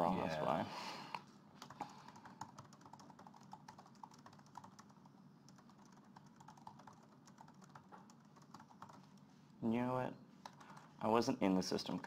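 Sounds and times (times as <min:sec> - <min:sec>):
keyboard typing clicks: 0:01.6 - 0:09.0.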